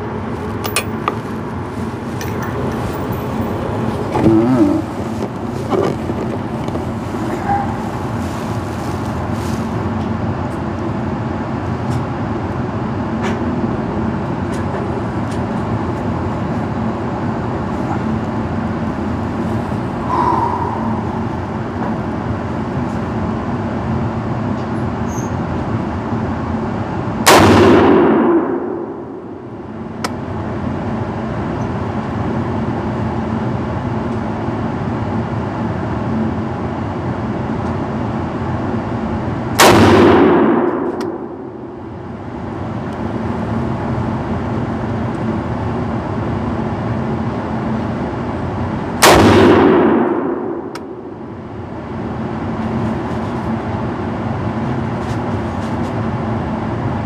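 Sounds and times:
steady background hum: 0:00.0 - 0:57.0
rifle shots echoing indoors: 0:27.3 - 0:29.3, 0:39.6 - 0:41.6, 0:49.0 - 0:50.9.

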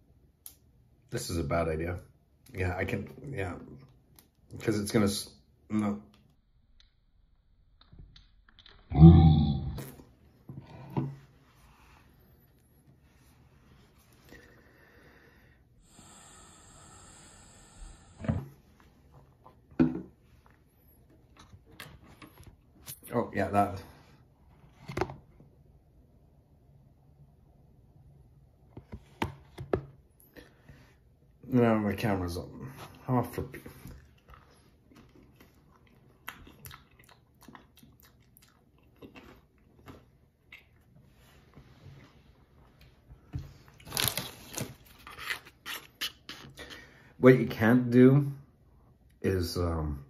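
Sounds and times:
man breathing in with a hiss: 0:14.3 - 0:18.4
person chewing a crunchy chip: 0:34.0 - 0:40.9, 0:43.7 - 0:46.8.

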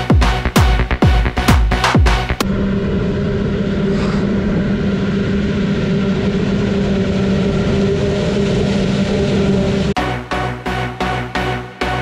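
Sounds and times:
harvester engine droning: 0:02.4 - 0:10.0.

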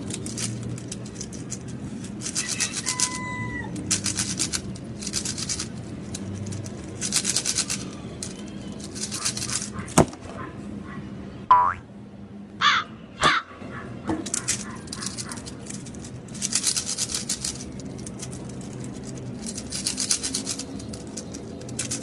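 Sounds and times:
rapid plastic clicks of cube: 0:00.0 - 0:03.2, 0:03.8 - 0:10.0, 0:14.2 - 0:22.0.

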